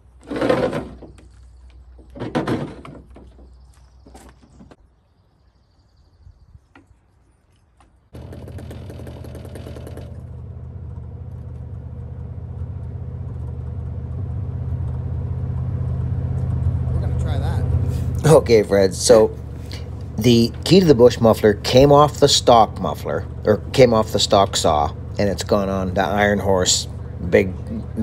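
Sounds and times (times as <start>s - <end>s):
low steady engine hum: 8.1s - 28.0s.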